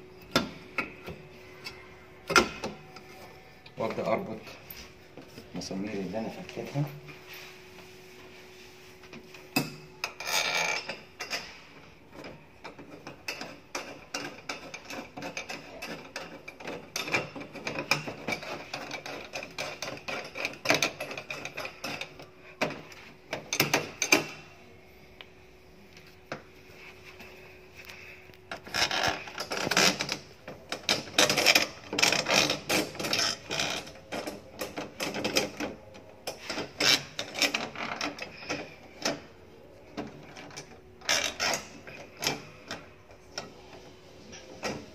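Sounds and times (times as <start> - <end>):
small metal clicks and scraping: 27.8 - 44.9.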